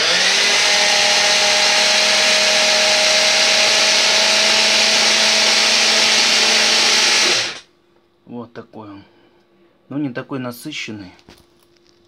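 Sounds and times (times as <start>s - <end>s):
mini chopper motor whining: 0.0s - 7.6s.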